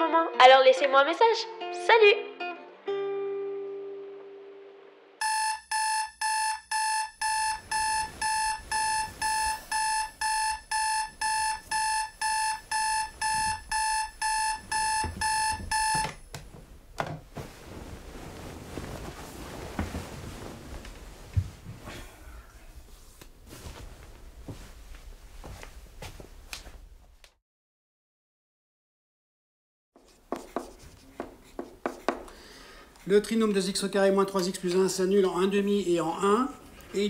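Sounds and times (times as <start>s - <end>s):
electronic alarm beeping: 5.2s - 16.2s
bedding rustling: 7.3s - 27.2s.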